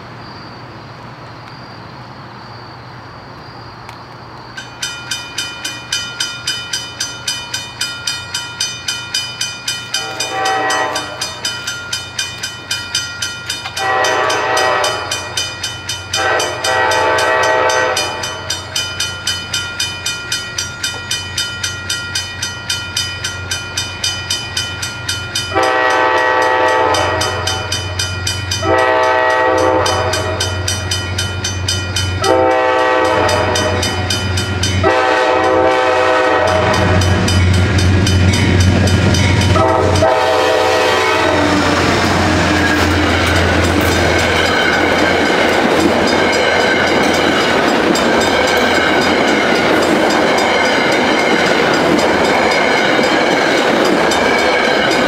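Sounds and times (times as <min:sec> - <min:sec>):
crossing bell ringing: 0:04.5 - 0:55.0
train horn blasts: 0:10.0 - 0:11.4, 0:13.8 - 0:15.4, 0:16.2 - 0:18.5, 0:25.5 - 0:28.0, 0:28.6 - 0:30.7, 0:32.2 - 0:34.1, 0:34.8 - 0:37.2, 0:39.4 - 0:44.2
locomotive engine rumble: 0:23.4 - 0:55.0.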